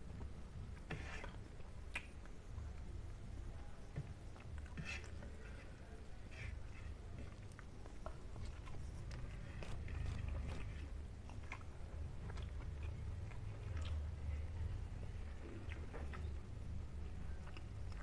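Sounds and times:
chewing mouth sounds: 7.2s - 14.4s, 15.4s - 16.3s.

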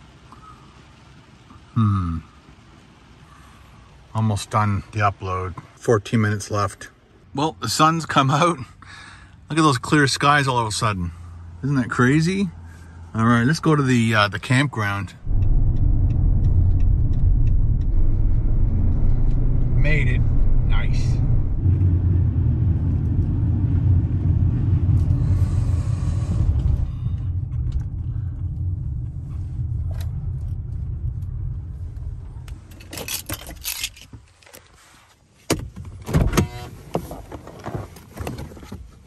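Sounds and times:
vehicle road and engine rumble: 0.0s - 39.0s
car door opening clicks: 35.5s - 38.8s.

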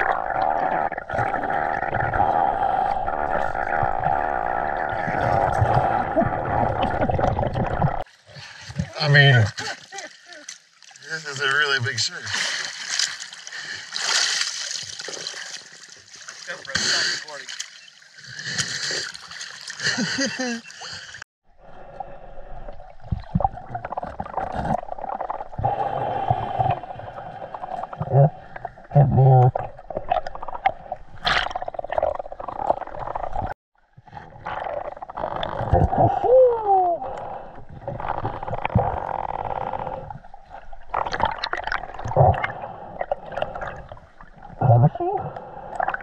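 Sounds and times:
underwater gurgling and bubbling: 0.0s - 8.1s, 21.6s - 46.0s
muffled underwater rush of water: 0.0s - 9.3s.

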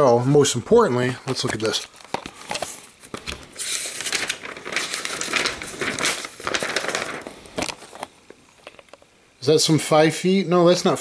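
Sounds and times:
stiff paper rustling and crinkling: 1.0s - 9.0s.

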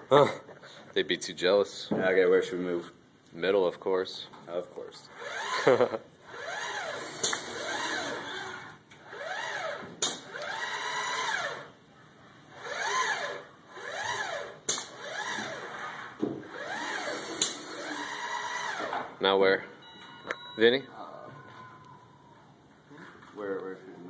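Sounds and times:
robot arm motors whining: 5.1s - 11.7s, 12.5s - 19.1s
sharp clicks: 7.2s - 7.5s.

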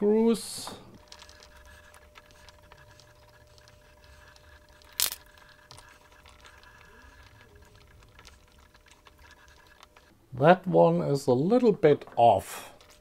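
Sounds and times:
faint multi-tone hum: 0.0s - 13.0s
small plastic parts handling: 0.9s - 10.1s.

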